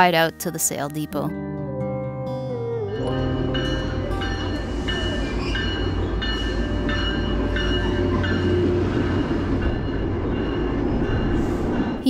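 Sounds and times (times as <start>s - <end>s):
train rumbling on wheels: 3.0s - 12.0s.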